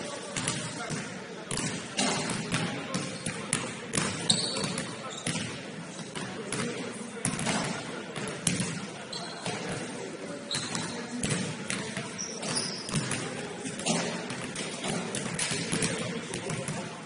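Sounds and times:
murmur of voices: 0.0s - 17.0s
basketball bouncing on gym floor: 0.4s - 5.6s, 10.6s - 16.8s
shoe squeaks: 4.2s - 5.4s, 9.1s - 9.5s, 10.4s - 11.1s, 12.1s - 13.0s.

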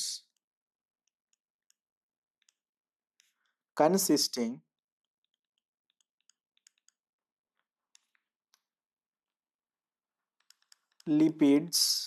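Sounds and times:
stylus tapping on tablet: 0.3s - 3.4s, 5.0s - 7.1s, 7.9s - 8.7s, 10.4s - 11.1s.

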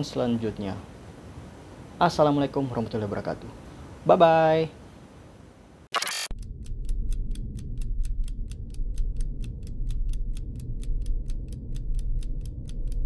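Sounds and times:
fast ticking beat: 6.3s - 13.0s
low bass: 6.3s - 13.0s.

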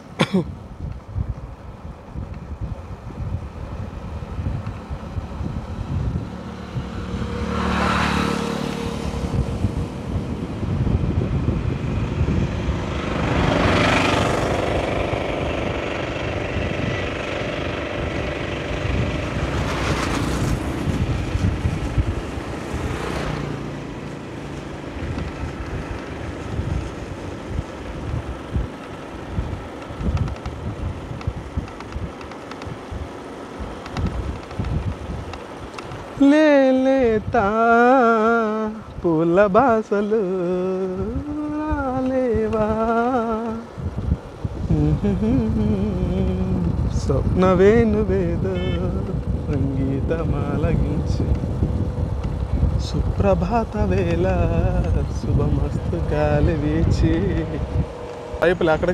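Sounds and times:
motorcycle low rumble: 0.0s - 58.9s
vehicles passing: 0.0s - 58.9s
wind buffeting microphone: 0.0s - 58.9s.

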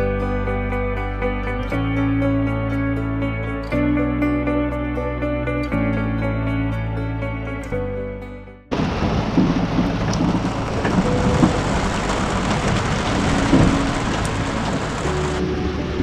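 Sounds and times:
heavy rain hiss: 8.7s - 15.4s
low rumble: 8.7s - 16.0s.

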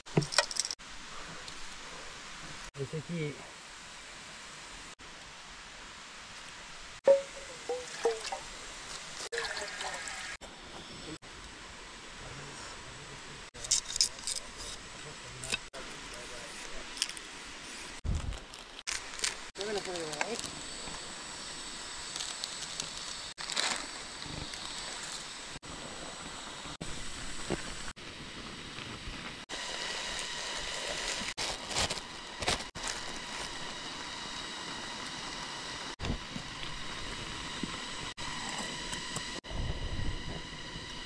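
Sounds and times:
plastic bag crinkling: 31.0s - 33.6s.

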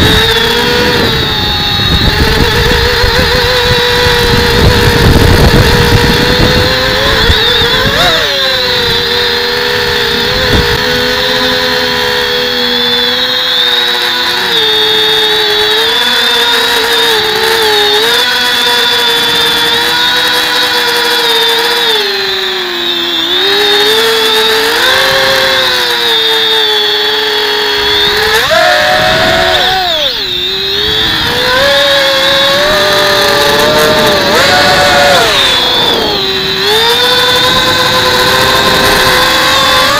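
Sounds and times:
wind buffeting: 0.0s - 11.9s, 27.9s - 39.9s
drone motors whining: 0.0s - 39.9s.

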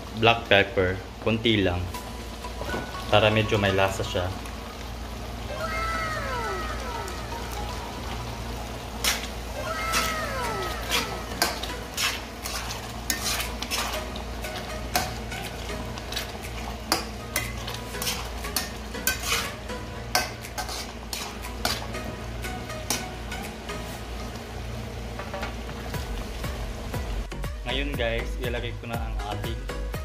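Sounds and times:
sauce sizzling: 0.0s - 27.6s
utensil scraping frying pan: 9.0s - 24.3s.

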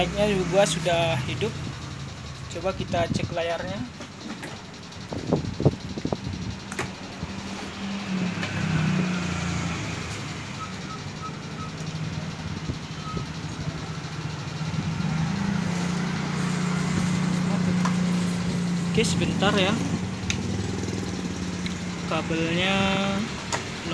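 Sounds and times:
short high beeps: 10.5s - 11.9s, 12.9s - 13.6s.

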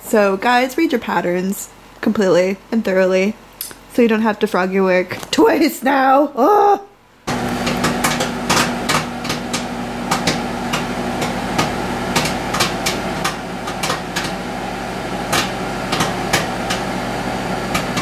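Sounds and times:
microwave oven humming: 7.2s - 18.0s
popcorn popping: 7.3s - 18.0s.

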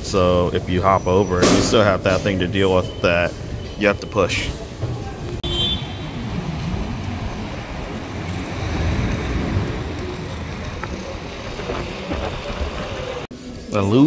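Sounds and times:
passing cars: 0.0s - 13.4s.

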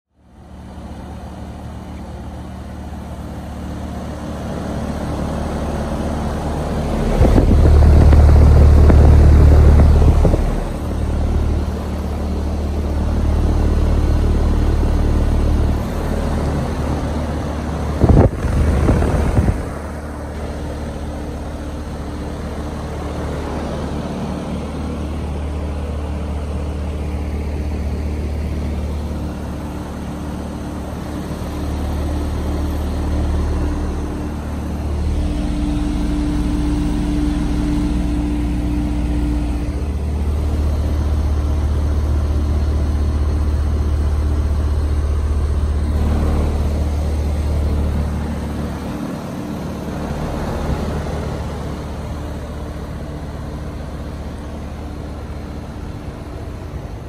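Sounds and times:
condenser fan turning: 0.1s - 57.0s
heat pump compressor hum: 0.1s - 57.0s.

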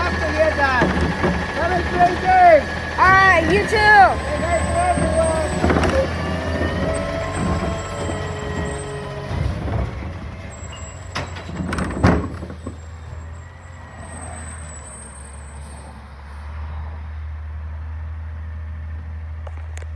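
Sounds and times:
clunks: 0.0s - 15.1s
truck engine rumbling: 0.0s - 19.9s.

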